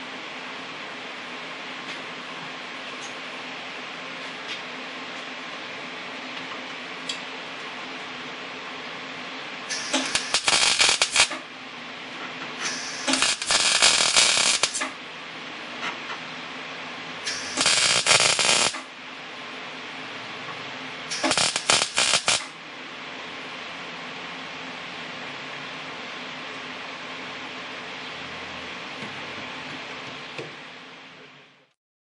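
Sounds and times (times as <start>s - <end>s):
steady hum and hiss: 0.0s - 31.8s
welder arc crackling: 9.7s - 11.5s, 12.6s - 15.0s, 17.2s - 18.9s, 21.0s - 22.6s.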